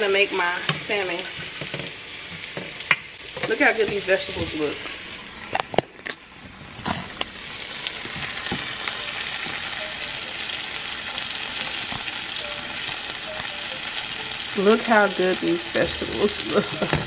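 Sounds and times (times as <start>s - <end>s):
vegetables sizzling in a frying pan: 0.0s - 17.0s.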